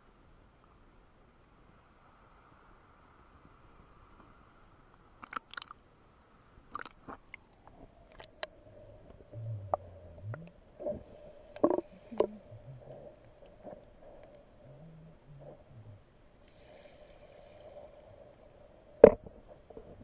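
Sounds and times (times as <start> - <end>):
faint steady hum: 0.0 - 20.0
low underwater rumbles: 7.6 - 20.0
underwater clicks and knocks: 11.5 - 13.0, 19.0 - 20.0.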